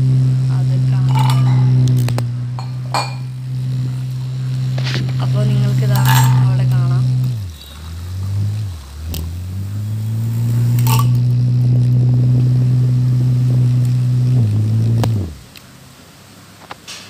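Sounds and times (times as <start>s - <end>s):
whisk clinking against steel: 1.0s - 2.0s, 2.6s - 3.4s, 5.8s - 6.8s
small motor whirring: 3.4s - 15.4s.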